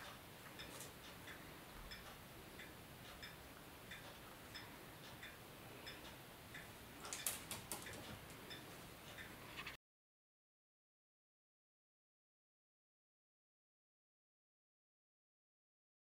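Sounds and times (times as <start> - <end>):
wall clock ticking: 0.0 - 9.4.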